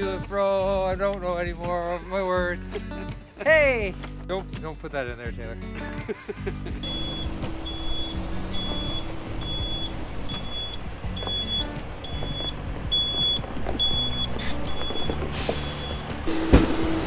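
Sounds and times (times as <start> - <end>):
diesel engine running: 6.8 - 17.0
vehicle backup alarm beeping: 6.8 - 17.0.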